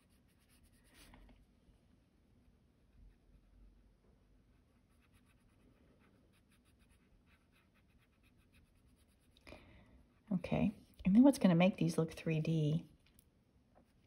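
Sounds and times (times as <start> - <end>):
pencil scratching on paper: 0.0 - 1.1, 4.6 - 9.4.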